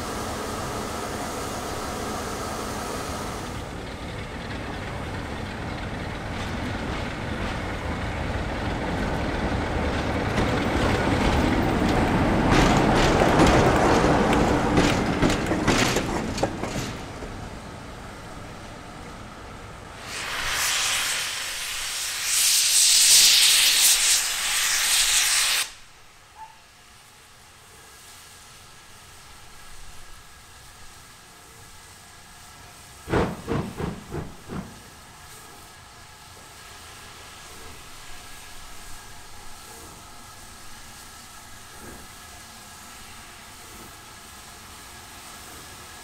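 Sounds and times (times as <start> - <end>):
steam locomotive hissing steam: 0.0 - 46.0.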